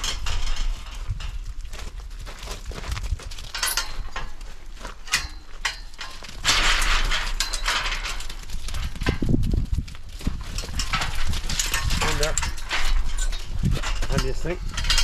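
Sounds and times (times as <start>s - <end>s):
sheep hooves clattering: 0.0s - 15.0s
metal gates knocking: 3.6s - 4.4s, 5.0s - 8.4s, 10.6s - 15.0s.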